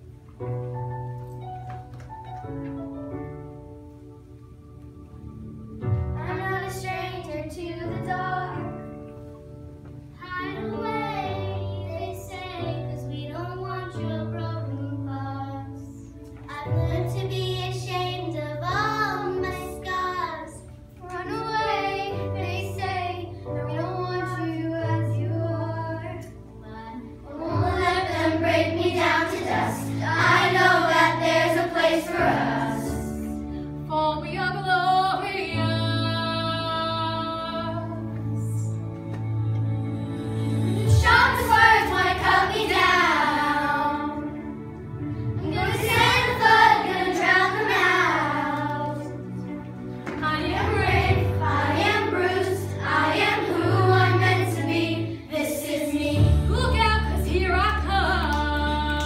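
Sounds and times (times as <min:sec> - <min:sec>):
instrumental backing track: 0:00.0 - 0:59.0
children singing: 0:26.8 - 0:33.4, 0:39.9 - 0:44.6, 0:45.4 - 0:49.4, 0:50.2 - 0:59.0.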